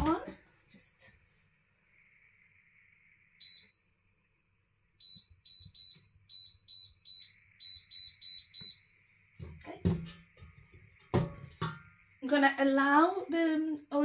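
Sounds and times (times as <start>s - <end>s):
hob control beeps: 3.4s - 3.7s, 5.0s - 8.9s.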